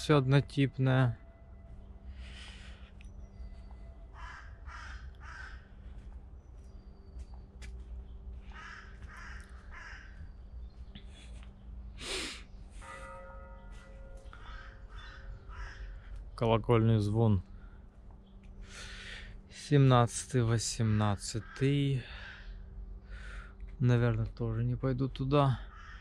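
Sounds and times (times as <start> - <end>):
church bell ringing: 0.0 - 4.8, 12.6 - 18.0
crows cawing: 3.8 - 6.2, 8.4 - 10.8, 12.8 - 16.4, 18.6 - 19.4, 20.9 - 23.6, 25.4 - 26.0.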